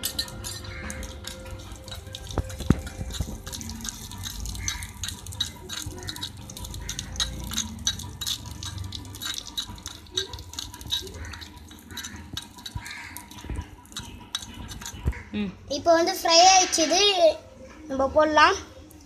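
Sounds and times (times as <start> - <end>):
metal spoon clicking on clay pot: 0.0 - 15.2
onion frying in oil: 0.0 - 15.2.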